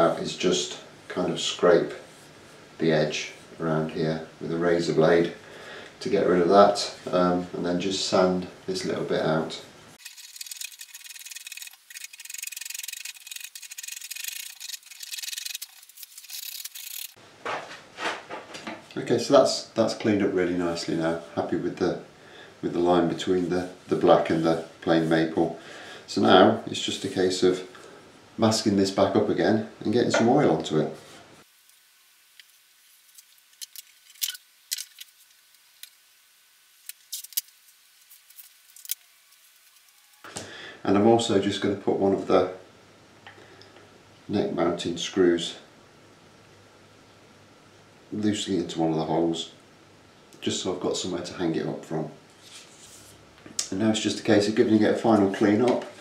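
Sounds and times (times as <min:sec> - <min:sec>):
hand sanding wood: 0:10.0 - 0:17.2.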